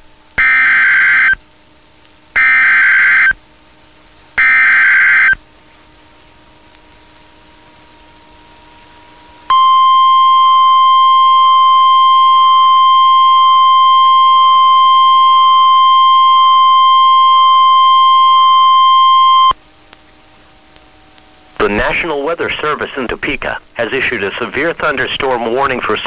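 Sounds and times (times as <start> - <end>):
faint radio hiss: 0.0 - 26.0
loud steady alarm tone: 0.4 - 1.4, 2.4 - 3.4, 4.4 - 5.4, 9.5 - 19.6.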